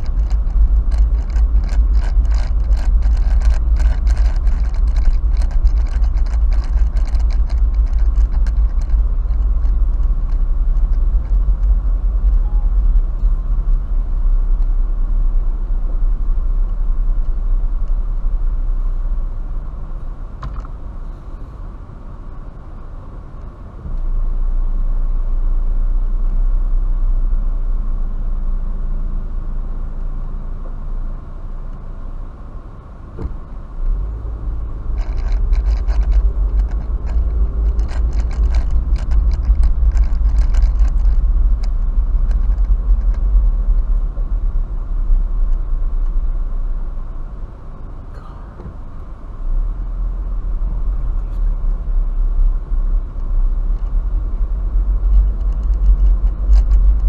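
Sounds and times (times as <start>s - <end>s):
rapid clicking and rattling: 0.0s - 13.2s, 34.5s - 46.3s, 53.0s - 57.0s
road and engine rumble: 0.0s - 57.0s.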